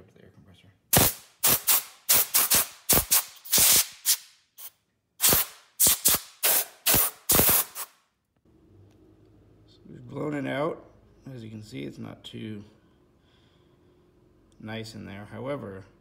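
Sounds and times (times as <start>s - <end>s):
air blow gun hissing bursts: 0.9s - 7.9s.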